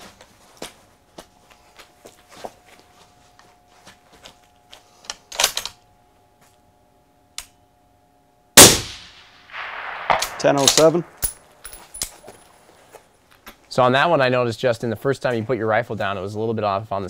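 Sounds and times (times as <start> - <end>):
rifle shot: 8.6 - 11.3.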